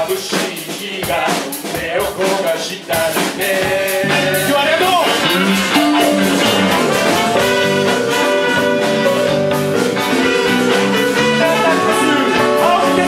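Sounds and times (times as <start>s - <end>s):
drums: 0.0s - 13.0s
electric bass: 4.0s - 12.0s
horn section playing held notes: 4.0s - 13.0s.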